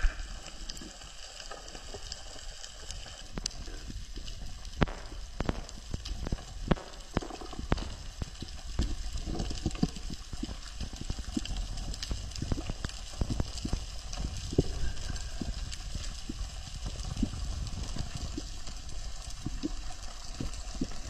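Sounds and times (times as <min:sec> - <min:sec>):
low rumble of moving water: 0:00.0 - 0:21.0
sharp underwater clicks and knocks: 0:03.3 - 0:18.8.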